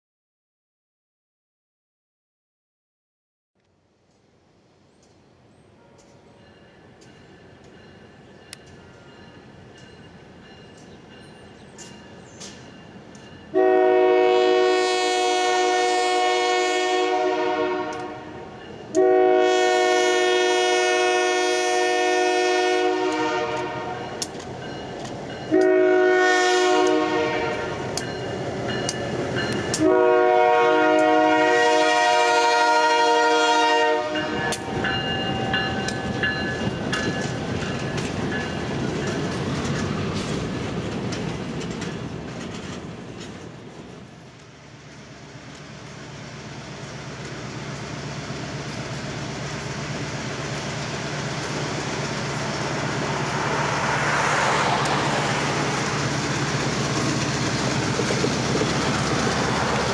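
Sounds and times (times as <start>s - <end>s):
locomotive air horn blasts: 13.5s - 24.2s, 25.5s - 27.9s, 29.7s - 35.9s.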